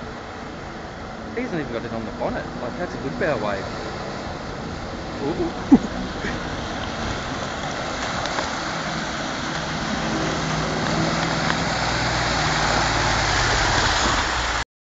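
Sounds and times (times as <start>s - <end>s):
river water rushing: 0.0s - 14.6s
truck engine humming: 0.0s - 14.6s
wheels splashing through water: 0.0s - 14.6s.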